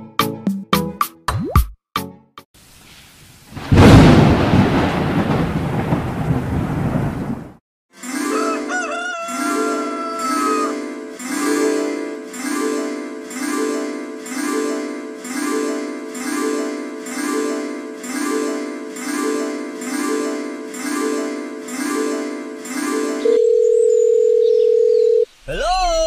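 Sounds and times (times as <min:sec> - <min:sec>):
repeated bright musical figure: 0:08.0 - 0:24.8.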